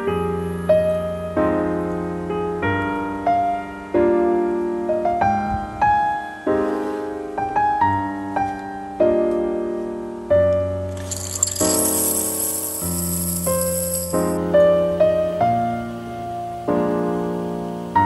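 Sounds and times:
slow piano music: 0.0 - 11.0.

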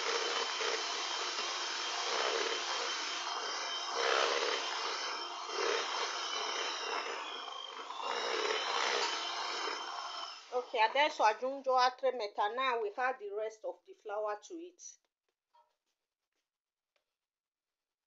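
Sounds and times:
electric hand mixer whisking batter: 0.0 - 11.4.

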